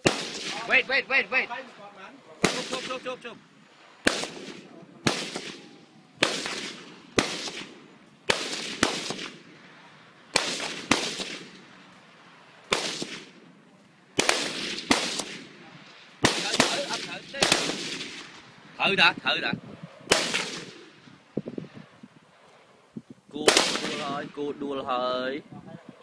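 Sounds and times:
rifle shots echoing: 0.0s - 1.2s, 2.4s - 18.7s, 20.1s - 21.4s, 23.4s - 24.4s.

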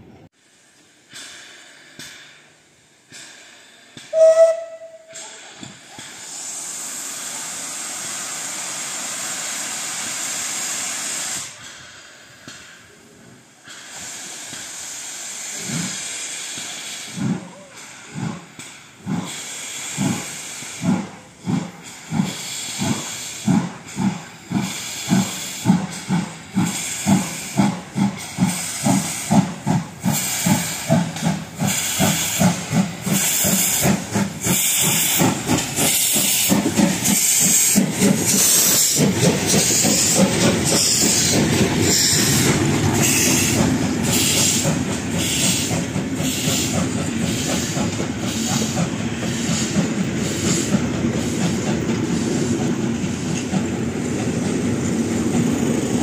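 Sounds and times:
steam hissing: 0.4s - 56.0s
steam locomotive whistle toot: 4.1s - 5.4s
locomotive exhaust chuffs: 13.7s - 56.0s.

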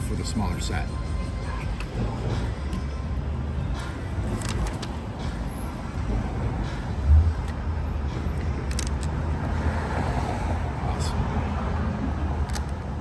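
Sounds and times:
road traffic rumble: 0.0s - 13.0s
plastic pieces clicking together: 8.7s - 9.1s.

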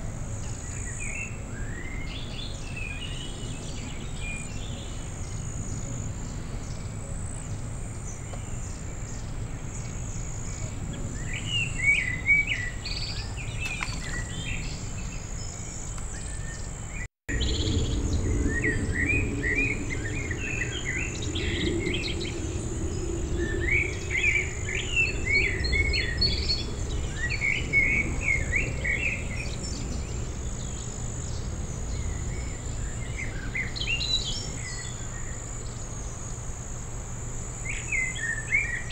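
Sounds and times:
insects buzzing: 0.0s - 38.9s
songbird chirping and warbling: 0.4s - 36.5s
faint low drone: 17.3s - 38.4s.

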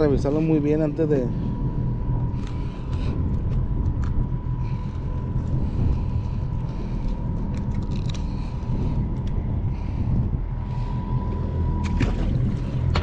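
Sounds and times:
outboard motor idling: 10.8s - 13.0s.

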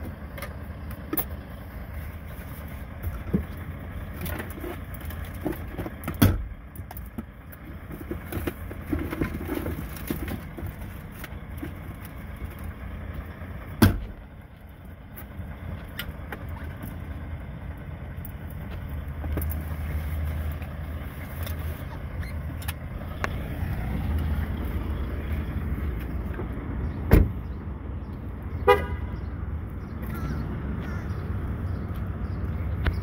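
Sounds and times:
low rumble inside car: 0.0s - 33.0s
car door slamming: 6.2s - 6.5s, 13.8s - 14.2s, 27.1s - 27.4s
car horn chirp: 28.6s - 29.2s.

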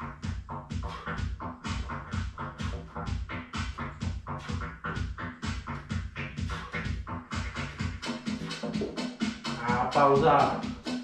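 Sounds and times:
electronic music with steady beat: 0.0s - 11.0s.

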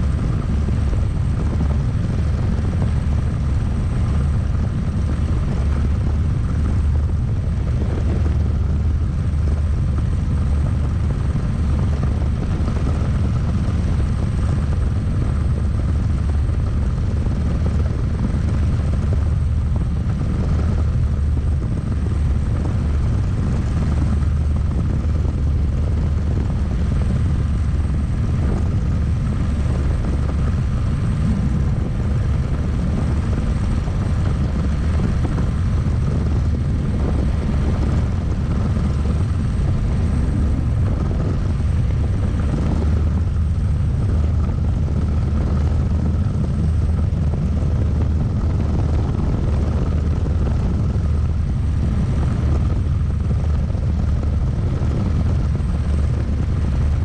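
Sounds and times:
helicopter rotor and engine noise: 0.0s - 57.0s
high-pitched turbine whine: 0.0s - 57.0s.

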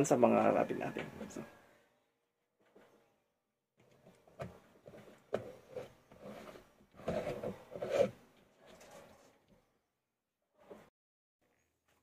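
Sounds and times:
plastic rubbing and knocking: 3.8s - 9.3s.

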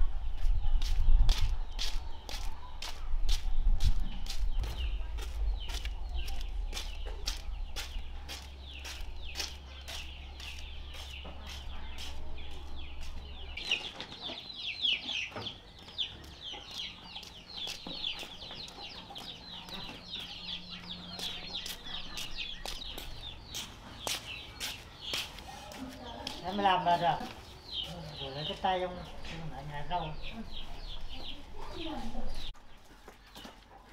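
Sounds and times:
chickens cheeping: 0.0s - 33.9s
footsteps tapping: 0.4s - 13.7s, 15.3s - 20.4s, 21.2s - 27.9s.

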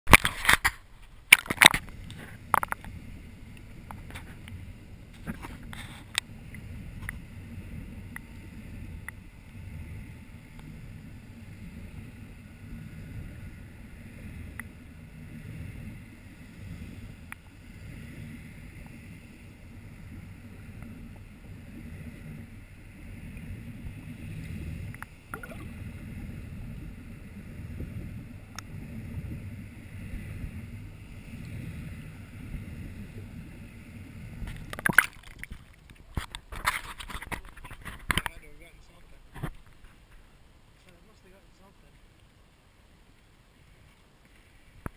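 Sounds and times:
muffled underwater rumble: 0.1s - 44.9s
faint clicks: 5.2s - 7.3s, 14.4s - 14.8s, 24.8s - 25.6s
water splashing: 23.3s - 26.0s, 34.4s - 39.8s.

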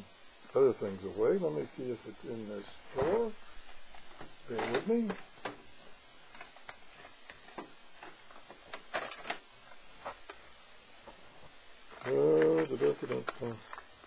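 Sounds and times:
objects clicking in a drawer: 6.3s - 9.5s.

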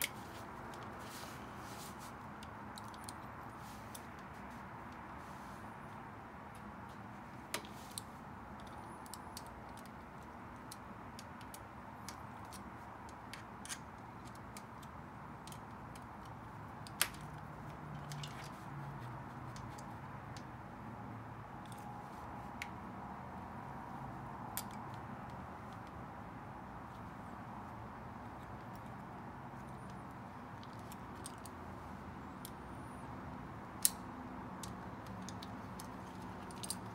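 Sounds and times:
clicks and taps on bike parts: 6.5s - 18.4s, 24.5s - 26.0s, 33.8s - 36.9s.

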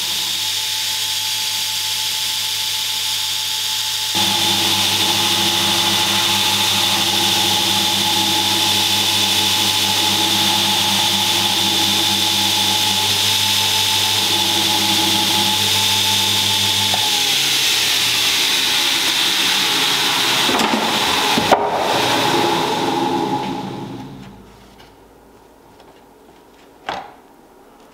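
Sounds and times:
abrasive belt grinding steel: 4.1s - 24.5s
grinder motor hum: 4.1s - 24.5s.

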